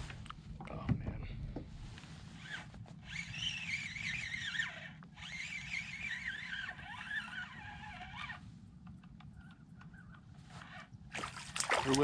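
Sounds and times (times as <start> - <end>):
fishing reel gear whir: 2.3 - 8.4.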